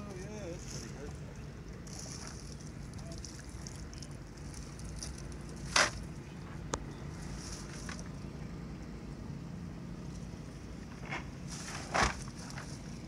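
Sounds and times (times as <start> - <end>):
low rumble of wind and water: 0.0 - 13.0
rustling of net mesh: 7.1 - 8.1.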